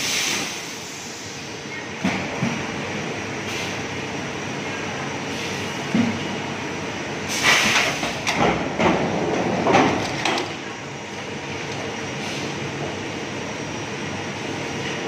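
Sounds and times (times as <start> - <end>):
welding hiss: 0.0 - 1.5.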